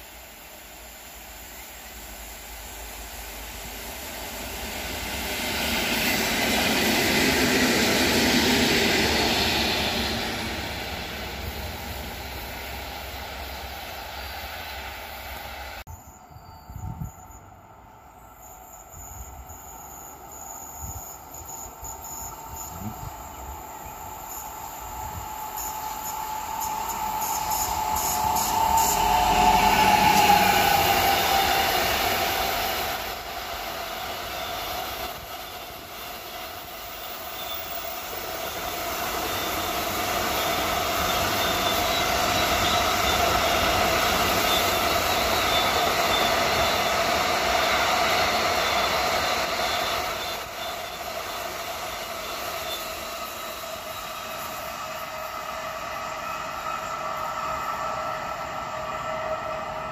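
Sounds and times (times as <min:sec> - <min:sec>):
train wheels rumbling: 0:00.0 - 0:16.1, 0:16.8 - 0:59.9
high whining tones: 0:18.4 - 0:59.9.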